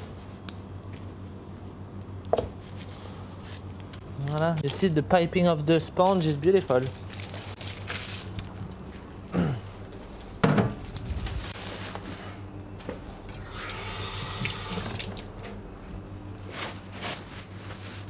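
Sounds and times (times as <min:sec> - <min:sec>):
steady low hum: 0:00.0 - 0:18.0
tap water running into sink: 0:13.4 - 0:15.3.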